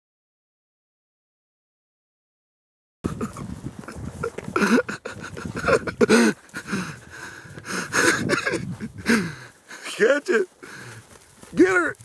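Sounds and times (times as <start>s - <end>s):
gasping laughter: 3.1s - 9.4s.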